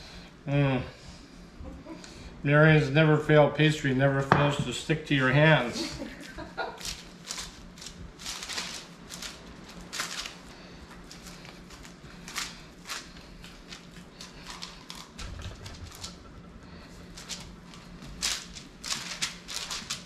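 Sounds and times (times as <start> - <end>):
hands patting pastry: 6.2 - 20.0
paper crinkling and rustling: 6.8 - 16.0, 17.2 - 20.0.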